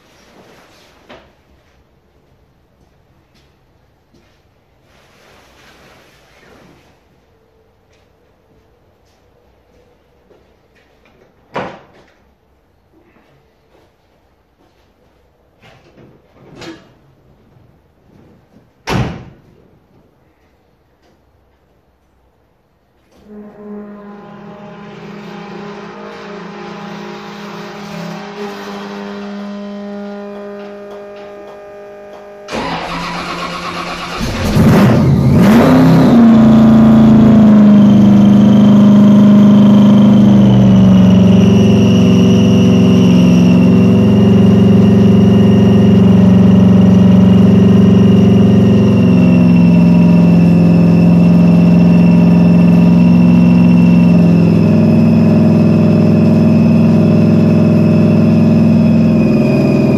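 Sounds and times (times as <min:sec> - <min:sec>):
steady hum: 0:23.2 - 0:32.7
car engine cranking and idling: 0:25.3 - 0:59.9.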